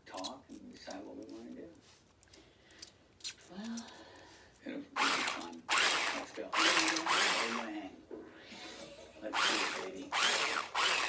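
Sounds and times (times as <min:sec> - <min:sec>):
electric blender whisking in metal bowl: 0:05.0 - 0:07.8, 0:09.3 - 0:11.0.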